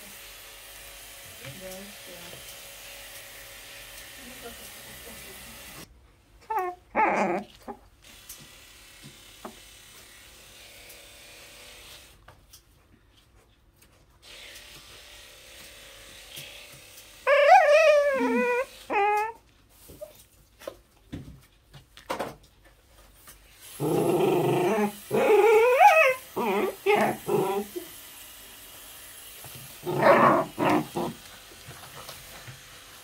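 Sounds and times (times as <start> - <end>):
puppy whining and yelping: 6.4 - 7.8, 17.3 - 19.4, 23.9 - 27.9, 29.8 - 31.2.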